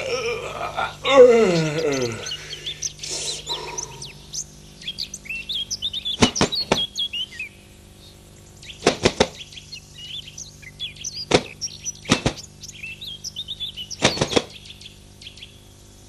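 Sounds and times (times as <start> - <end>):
small birds chirping: 0.0 - 16.0
sharp smacking impacts: 6.2 - 6.9, 8.8 - 9.4, 11.3 - 12.4, 14.0 - 14.6.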